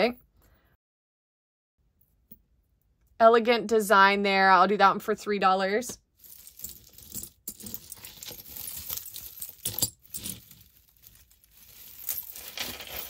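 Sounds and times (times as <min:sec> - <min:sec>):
jewelry clinking and rattling: 0:06.2 - 0:13.0.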